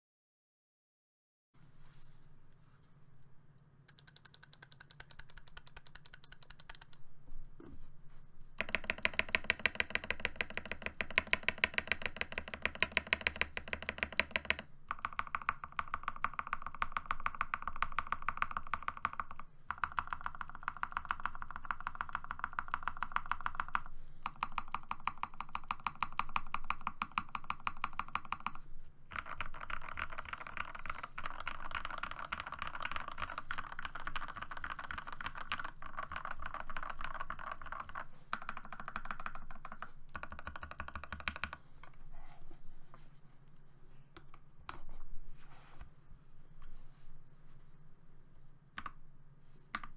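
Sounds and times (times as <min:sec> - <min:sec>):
mechanical keyboard typing: 0:03.9 - 0:07.0, 0:08.6 - 0:41.6.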